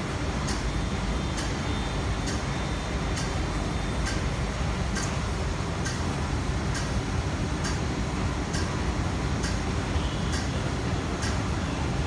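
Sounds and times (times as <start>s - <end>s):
low train hum: 0.0s - 12.0s
sharp repeating tick: 0.4s - 0.7s, 1.3s - 1.6s, 2.2s - 2.5s, 3.1s - 3.4s, 4.0s - 5.2s, 5.8s - 7.0s, 7.6s - 7.8s, 8.5s - 8.8s, 9.4s - 9.7s, 10.3s - 10.6s, 11.2s - 11.5s.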